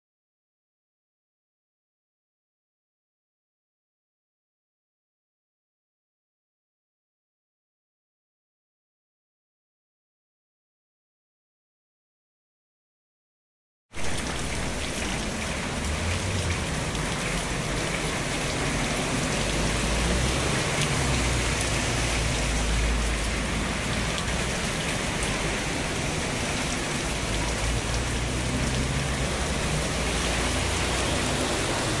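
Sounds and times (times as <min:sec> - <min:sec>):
torrential rain pouring: 0:14.0 - 0:32.0.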